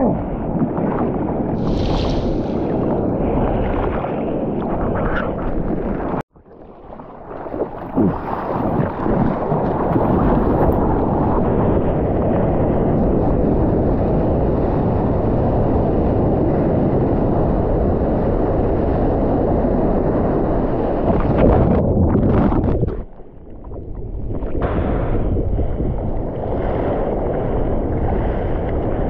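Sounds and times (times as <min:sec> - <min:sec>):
ocean surf: 0:00.0 - 0:06.2, 0:24.6 - 0:29.0
wind buffeting microphone: 0:00.0 - 0:06.3, 0:07.6 - 0:29.0.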